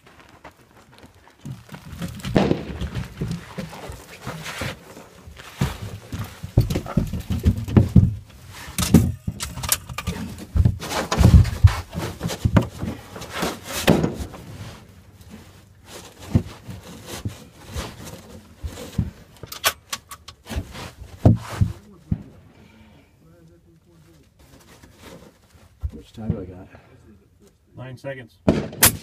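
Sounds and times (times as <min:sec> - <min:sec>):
knocks and scrapes on wooden floor: 0:01.4 - 0:19.3, 0:20.4 - 0:22.3.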